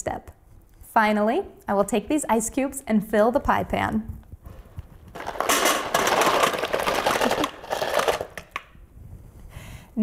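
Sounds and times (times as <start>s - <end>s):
ice cubes clattering in metal pan: 5.2s - 8.6s.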